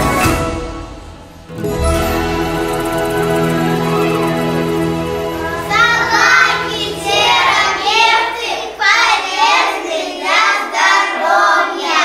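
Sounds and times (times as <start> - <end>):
background music: 0.0 - 9.4
child singing: 5.7 - 12.0.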